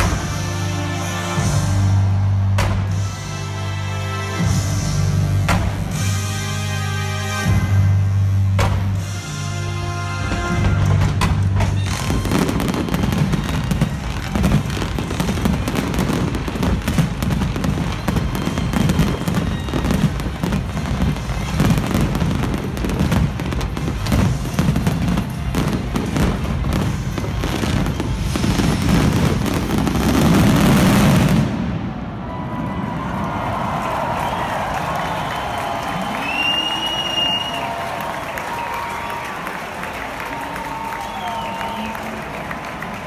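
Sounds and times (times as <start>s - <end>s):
fireworks bangs and crackles: 0.0s - 0.6s, 4.4s - 6.3s, 7.6s - 9.4s, 10.2s - 33.0s.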